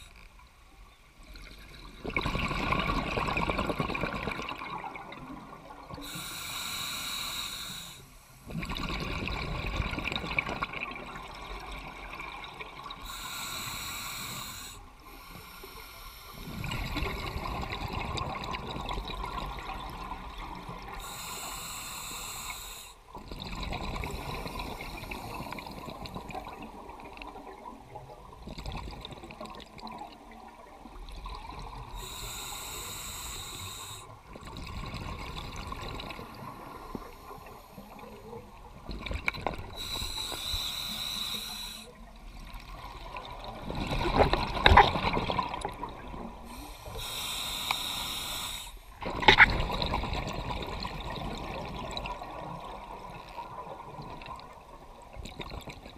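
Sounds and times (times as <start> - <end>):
exhaled bubbles: 1.2 - 6.2, 8.4 - 13.2, 16.3 - 21.2, 23.1 - 32.2, 33.4 - 55.9
hissing regulator inhalations: 6.0 - 8.6, 13.0 - 17.4, 20.9 - 23.1, 24.0 - 26.0, 31.9 - 34.2, 36.1 - 38.6, 39.6 - 42.0, 46.0 - 49.0.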